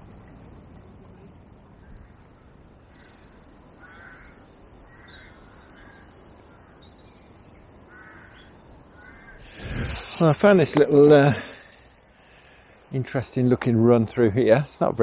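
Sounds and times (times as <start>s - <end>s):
crow cawing: 2.9s - 6.8s, 7.9s - 9.7s.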